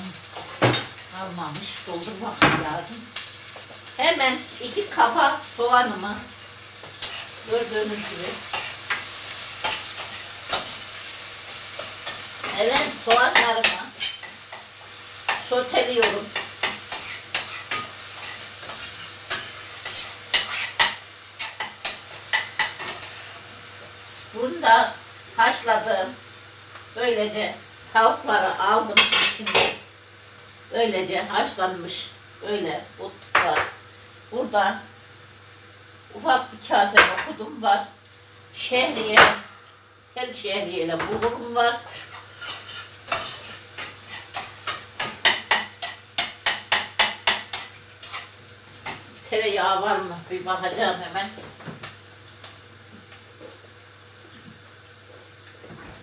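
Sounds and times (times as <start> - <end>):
onions sizzling in oil: 0.0 - 56.0
utensil scraping a metal pot: 16.4 - 23.3, 41.9 - 48.2.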